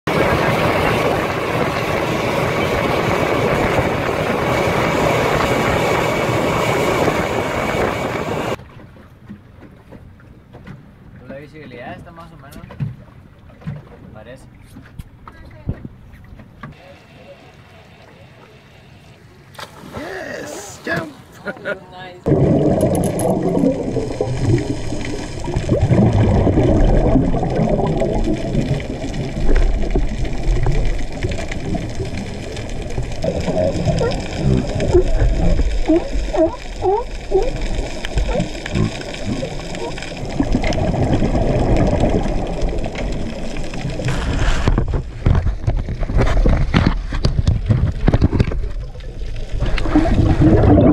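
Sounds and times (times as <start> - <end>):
wind and water noise: 0.0 - 50.9
boat engine running: 0.1 - 11.1, 22.2 - 44.1
small clicks and crackles: 26.5 - 50.1.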